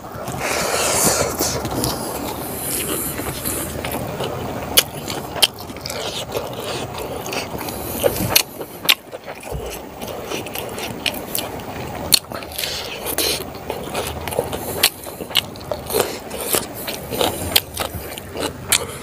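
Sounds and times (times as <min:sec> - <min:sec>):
chewing with wet mouth noises: 0:00.1 - 0:19.0
fingers scraping rice on leaf: 0:00.4 - 0:03.7.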